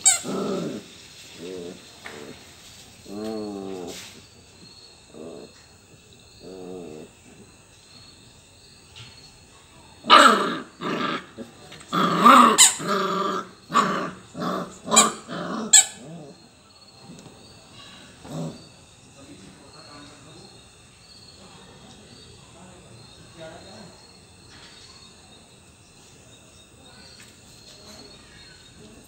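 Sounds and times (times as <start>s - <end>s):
puppy play-growling: 0.0s - 7.6s, 10.0s - 19.5s.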